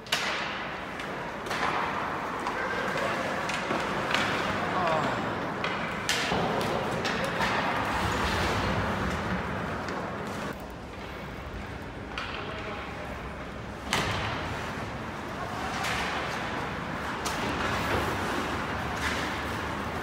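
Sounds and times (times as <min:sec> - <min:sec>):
hockey sticks and puck knocking: 0:00.0 - 0:07.9.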